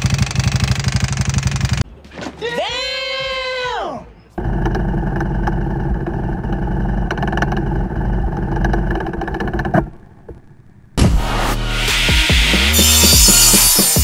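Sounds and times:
motorcycle engine running: 0:00.0 - 0:01.8, 0:04.4 - 0:11.3
metallic ticking clatter: 0:04.4 - 0:11.0
music: 0:11.0 - 0:14.0.

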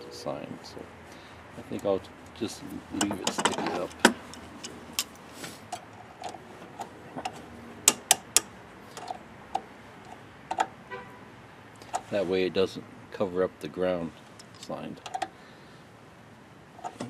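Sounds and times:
wrench clicking on metal nut: 0:07.9 - 0:09.7.

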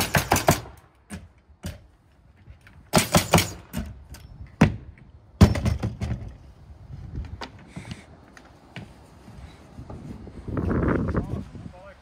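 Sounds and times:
wood knocks and thuds: 0:04.6 - 0:06.4.

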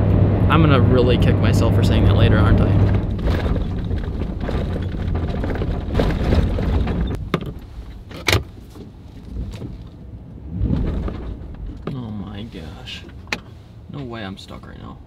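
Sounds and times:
engine and road rumble: 0:00.0 - 0:15.0
sharp knocks and rattles: 0:02.2 - 0:09.9, 0:10.6 - 0:12.0.

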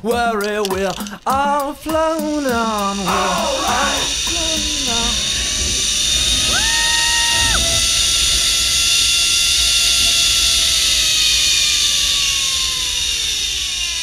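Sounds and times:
zip-line pulleys whirring: 0:02.0 - 0:14.0
wind rumbling on microphone: 0:03.3 - 0:10.8.

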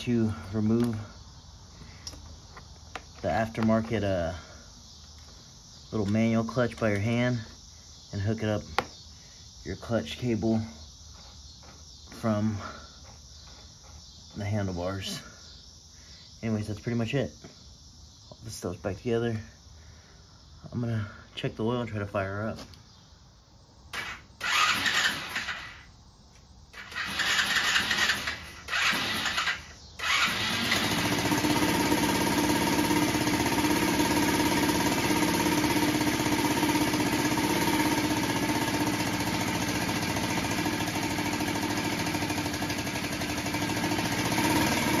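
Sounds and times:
engine cranking: 0:23.9 - 0:25.8, 0:26.7 - 0:45.0
engine idling: 0:26.7 - 0:45.0.

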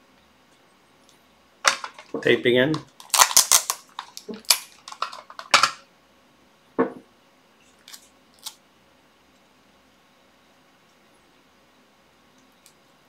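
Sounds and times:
adhesive tape ripping: 0:03.0 - 0:05.0.

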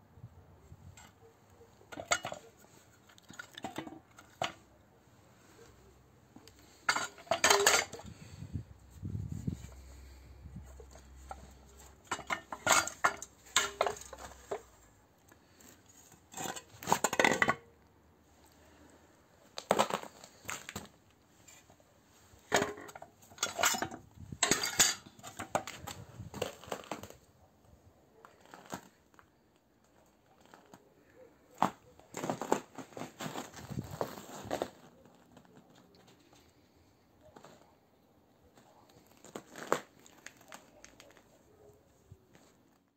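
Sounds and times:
metal clanking and rattling: 0:06.9 - 0:08.1, 0:11.2 - 0:14.7, 0:22.5 - 0:25.8.

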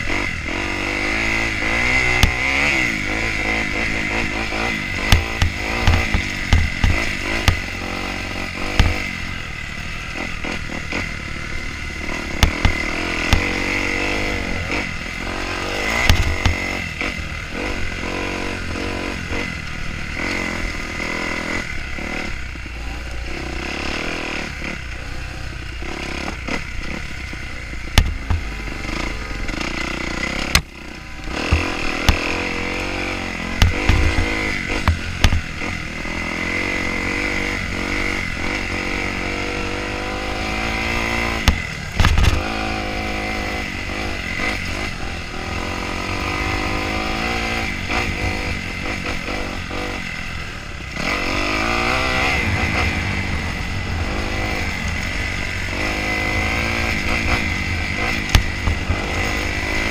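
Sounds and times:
two-stroke dirt bike engine revving: 0:00.0 - 0:59.9
bike knocking over bumps: 0:28.0 - 0:28.5, 0:33.6 - 0:35.5.

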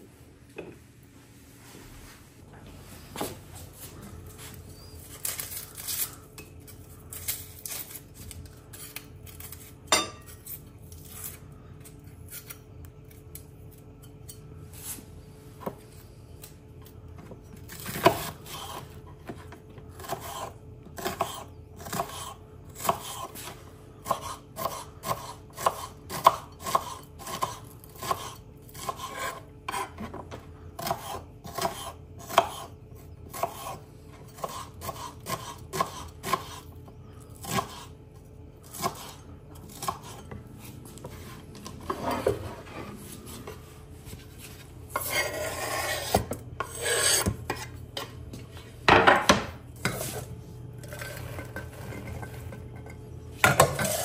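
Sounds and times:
knife chopping on wooden board: 0:20.0 - 0:30.2, 0:30.8 - 0:32.7, 0:34.4 - 0:36.6
scraping and rubbing: 0:40.1 - 0:47.7.

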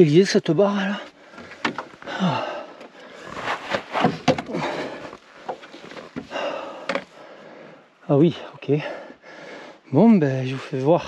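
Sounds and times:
person breathing hard: 0:01.1 - 0:03.6, 0:04.4 - 0:09.9
sharp clicks and knocks: 0:01.4 - 0:02.1.

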